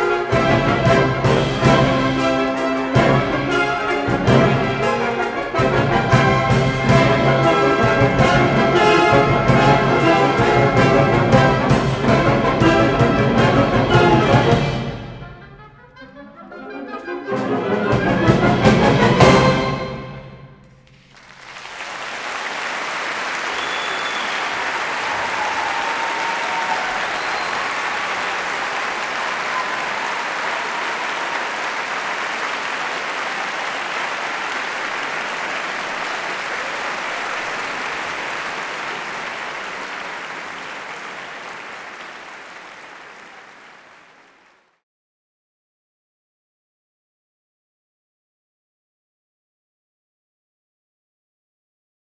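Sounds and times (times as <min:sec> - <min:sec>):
wind orchestra with brass and timpani: 0:00.0 - 0:20.8
audience applauding: 0:20.8 - 0:44.8.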